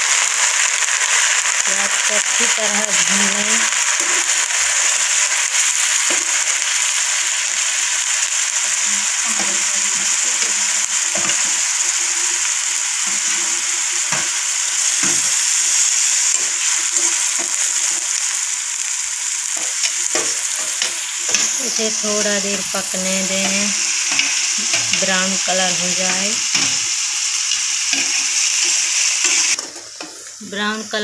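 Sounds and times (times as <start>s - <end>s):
onions sizzling in hot oil: 0.0s - 31.0s.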